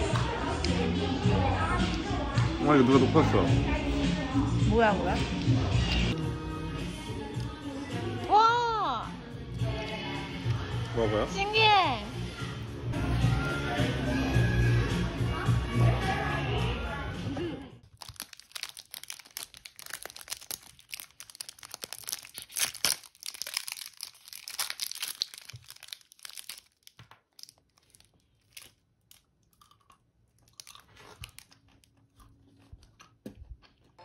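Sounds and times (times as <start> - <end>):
wrapper tearing and crinkling: 17.8 - 29.3, 30.4 - 32.0
chocolate coating crunching: 17.8 - 34.0.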